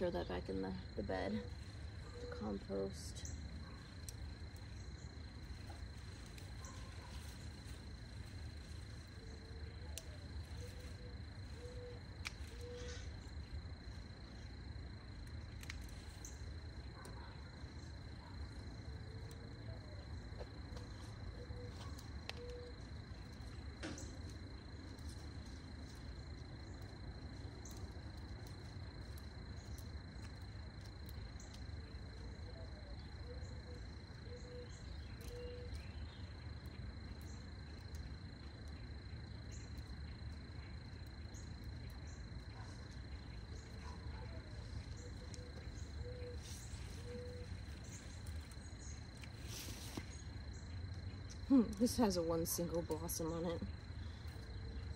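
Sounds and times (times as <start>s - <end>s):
high-pitched insect trill: 0.0s - 54.9s
sharp clicks of pruners: 12.2s - 13.0s.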